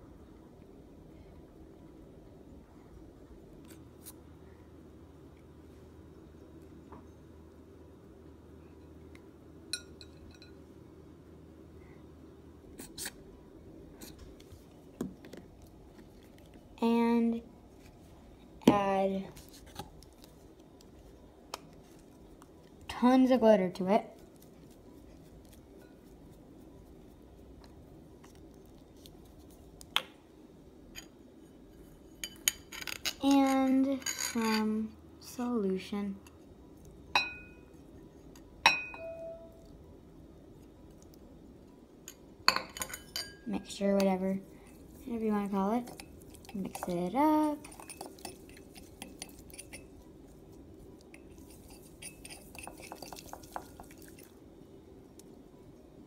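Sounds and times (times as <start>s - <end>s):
faint room noise: 0.0s - 56.0s
wet stirring in a bowl: 24.0s - 29.9s, 44.0s - 54.4s
utensil clinking against bowl: 42.1s - 43.5s, 45.8s - 50.0s, 51.1s - 54.3s.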